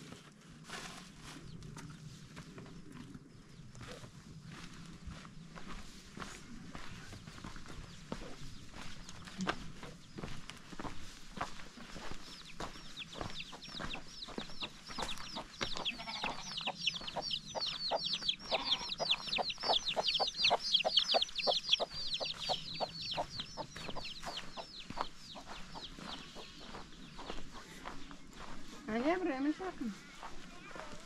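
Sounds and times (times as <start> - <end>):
chicks peeping: 6.7 - 28.8
hen clucking: 12.6 - 28.0.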